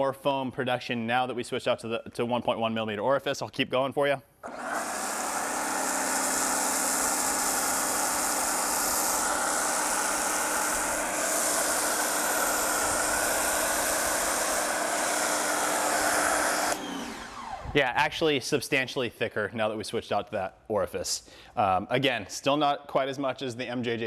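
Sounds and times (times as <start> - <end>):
pump motor hum: 4.4 - 17.8
foam spraying hissing jet: 4.6 - 16.8.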